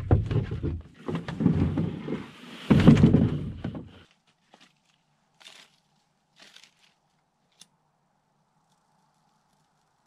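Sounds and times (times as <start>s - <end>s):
canoe hull thunking and scraping: 0.0s - 4.1s.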